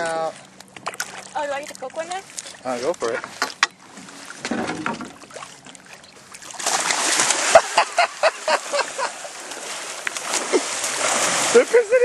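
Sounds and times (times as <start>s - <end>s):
rays splashing at water surface: 0.0s - 11.8s.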